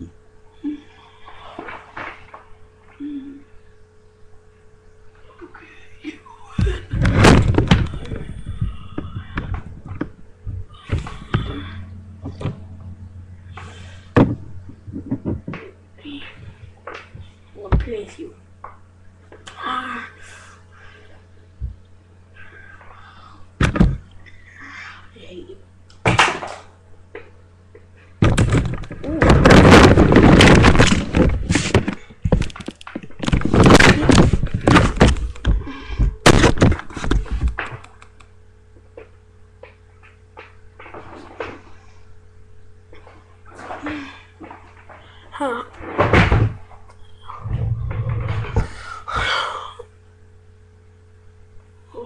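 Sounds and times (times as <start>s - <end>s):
low steady hum: 0.0s - 52.0s
webcam being knocked about: 28.2s - 35.5s, 36.2s - 37.8s.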